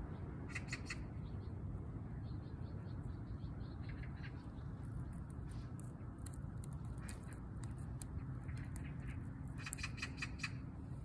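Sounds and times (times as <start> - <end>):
low background rumble: 0.0 - 11.0
cat claws scratching bark: 4.8 - 10.6.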